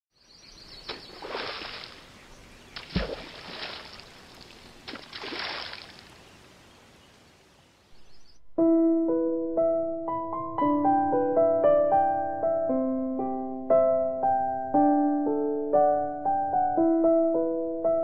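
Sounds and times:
splashes into water: 0.9s - 2.2s, 2.8s - 6.2s
piano music: 8.6s - 18.0s.

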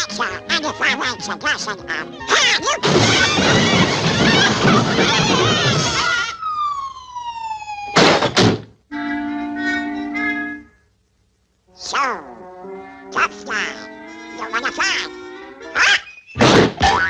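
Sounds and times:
cartoon squawking and clatter: 0.0s - 6.4s, 13.1s - 17.0s
loud crashing thuds: 2.8s - 6.3s, 7.9s - 8.8s, 16.4s - 17.0s
falling whistle: 16.0s - 16.4s.

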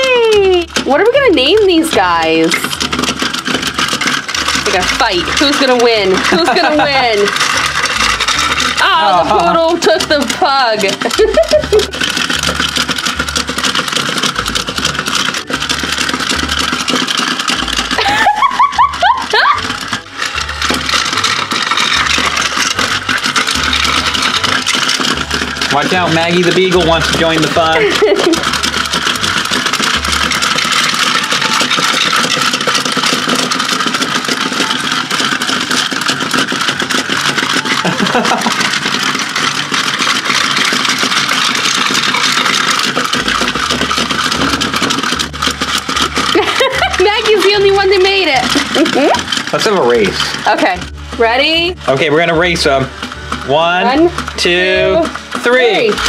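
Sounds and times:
toy motors whirring and clicking: 0.0s - 56.0s.

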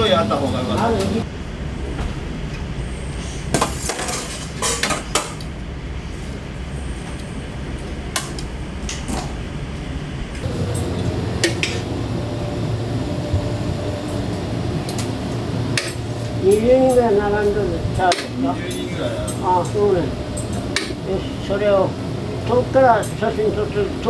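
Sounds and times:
utensils and dishes clinking: 3.7s - 5.4s
low hum: 5.6s - 24.0s.

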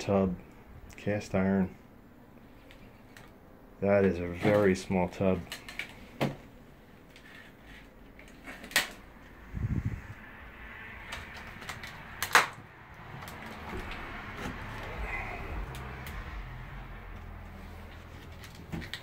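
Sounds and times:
low thumps: 13.5s - 18.2s.

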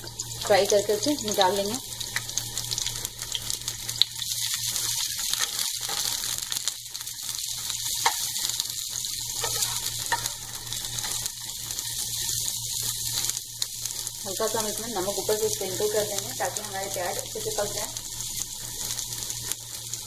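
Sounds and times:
onions sizzling in hot oil: 0.0s - 20.0s
wooden spatula scraping a pan: 9.4s - 10.4s.

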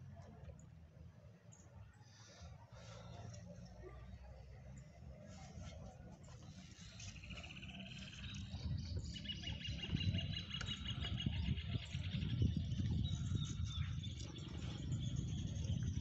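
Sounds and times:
wind rumble: 7.8s - 16.0s.

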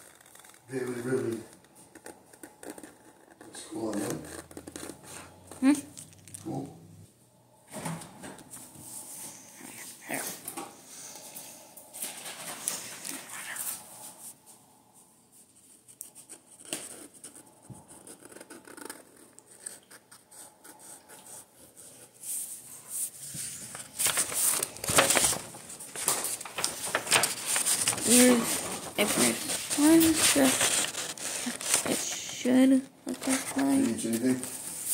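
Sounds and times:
paper rustling: 15.9s - 34.9s.

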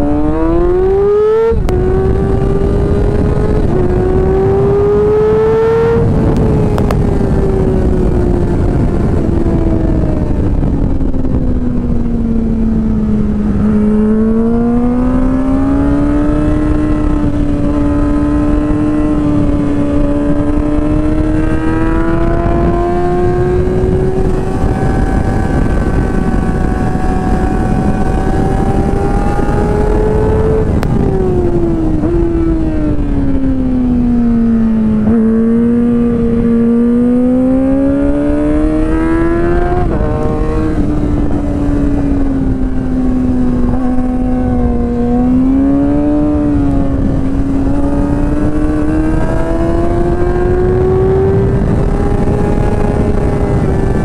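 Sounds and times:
rush of wind: 0.0s - 54.0s
sport bike engine: 0.0s - 54.0s.

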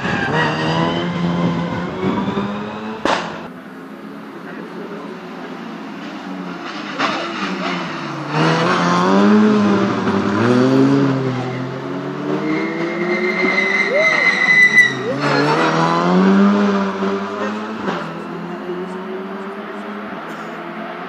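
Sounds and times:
rally car engine revving: 0.0s - 21.0s
sharp pop: 3.0s - 3.5s.

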